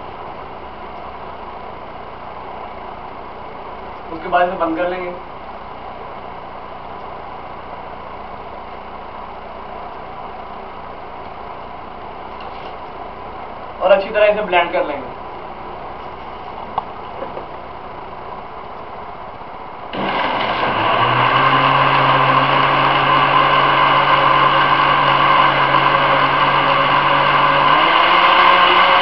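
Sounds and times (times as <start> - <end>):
blender running: 19.9 - 29.0.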